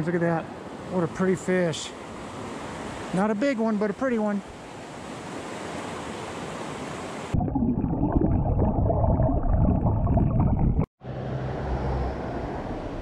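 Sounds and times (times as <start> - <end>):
muffled underwater rumbling and gurgling: 7.4 - 10.9.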